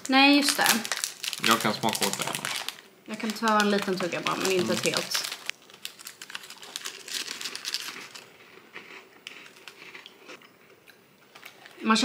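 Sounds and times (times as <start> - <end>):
plastic bag crinkling: 0.0 - 8.6
biscuits being bitten and chewed: 0.8 - 11.8.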